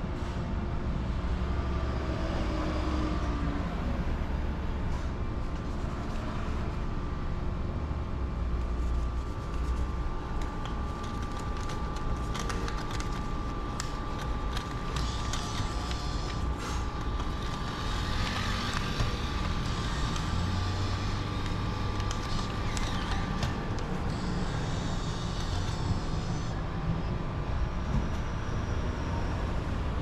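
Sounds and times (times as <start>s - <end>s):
street traffic: 0.0s - 10.8s, 13.6s - 30.0s
bill acceptor whirring and clicking: 10.4s - 25.7s.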